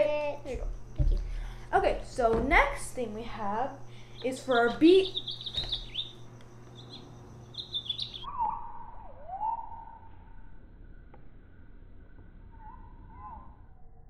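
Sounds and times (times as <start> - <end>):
low electronic hum: 0.0 - 14.0
recorded bird chirping: 3.8 - 14.0
sliding whistle-like notes: 8.2 - 14.0.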